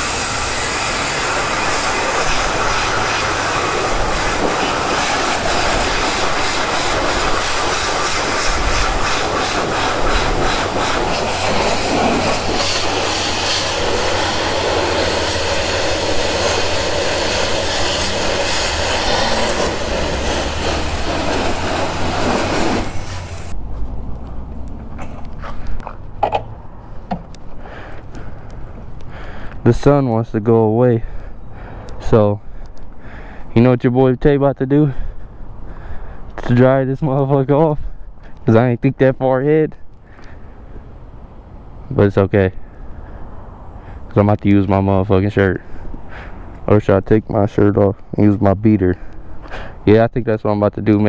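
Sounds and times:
high-pressure water spraying: 0.0 - 23.6.

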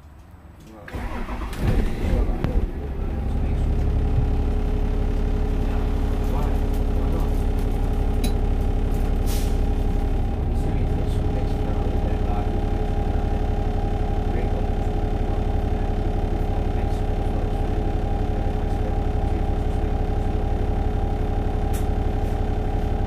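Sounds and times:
bus engine idling: 0.0 - 23.0
short hiss: 9.3 - 9.6.

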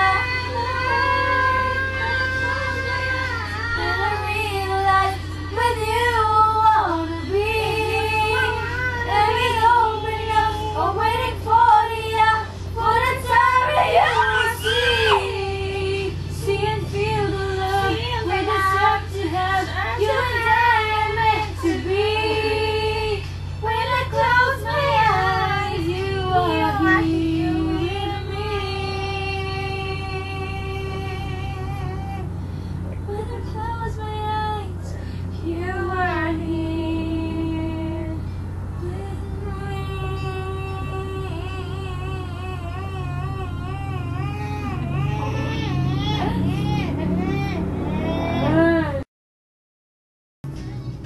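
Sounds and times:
girl singing: 0.0 - 32.3, 38.8 - 47.4
steady low hum: 0.0 - 49.0.

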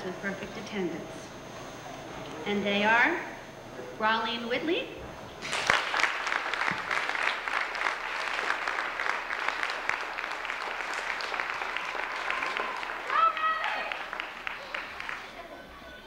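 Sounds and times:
audience applauding: 5.4 - 15.7.

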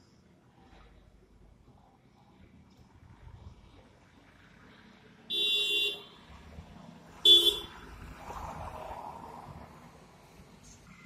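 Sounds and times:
vehicle horn honking: 5.3 - 6.0, 7.2 - 7.7.

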